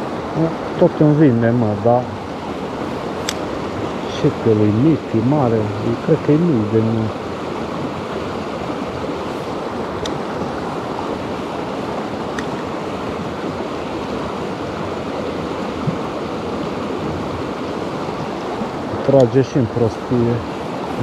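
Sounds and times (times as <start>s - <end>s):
river rushing over rapids: 0.0s - 21.0s
faint clicks: 10.0s - 10.2s.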